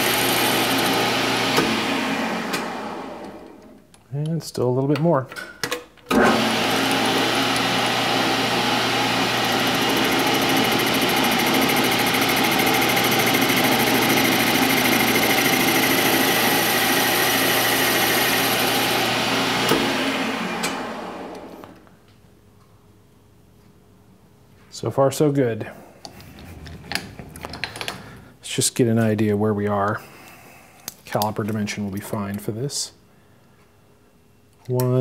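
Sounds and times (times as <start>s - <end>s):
lathe machine whine: 0.0s - 3.5s, 6.2s - 21.7s.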